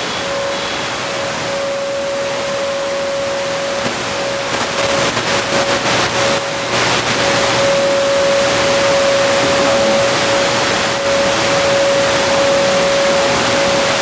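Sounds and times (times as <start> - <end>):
constant radio whistle: 0.0 - 14.0
radio static hiss: 3.3 - 14.0.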